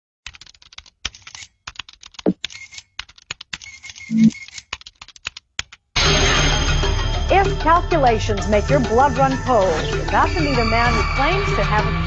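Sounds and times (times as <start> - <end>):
keyboard typing clicks: 0.3 - 5.8.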